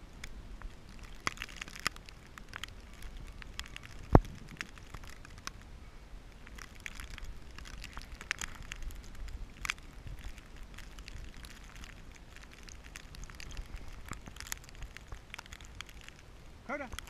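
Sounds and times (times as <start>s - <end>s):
crunching of deep snow: 6.4s - 17.0s.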